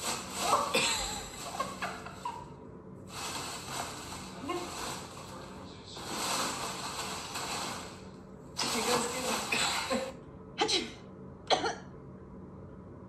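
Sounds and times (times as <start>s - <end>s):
plastic packing rustling: 0.0s - 2.4s, 3.1s - 10.1s.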